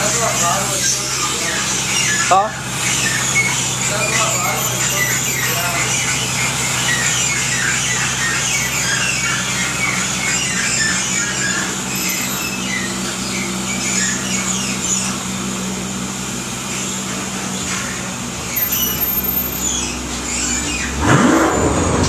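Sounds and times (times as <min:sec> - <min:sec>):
car engine idling: 0:00.0 - 0:22.0
engine revving: 0:00.0 - 0:22.0
high chirping squeaks: 0:00.7 - 0:15.2, 0:18.5 - 0:21.5.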